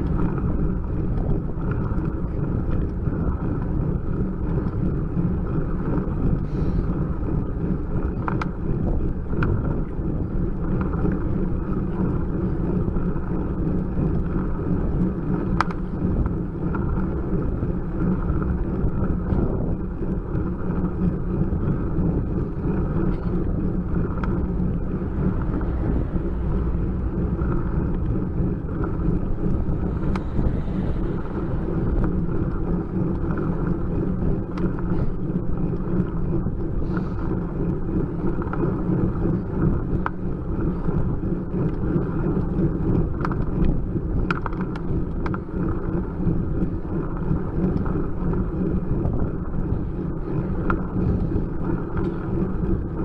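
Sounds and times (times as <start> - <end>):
bicycle tyres and drivetrain rumbling: 0.0 - 53.0
wind on microphone: 0.0 - 53.0
faint clicks: 15.5 - 16.8.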